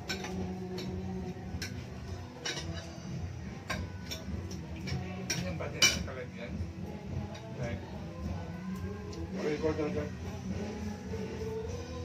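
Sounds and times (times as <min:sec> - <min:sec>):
cutlery clinking on plates: 0:00.0 - 0:01.0, 0:01.6 - 0:06.2.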